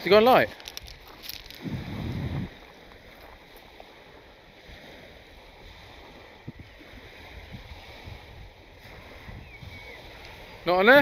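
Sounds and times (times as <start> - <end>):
water lapping at shoreline: 0.0 - 11.0
wind: 0.0 - 11.0
low wind rumble on microphone: 0.8 - 11.0.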